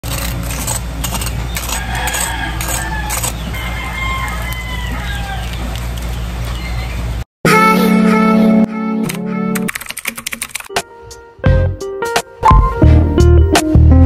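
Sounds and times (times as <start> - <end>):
rooster crowing: 1.6 - 5.7.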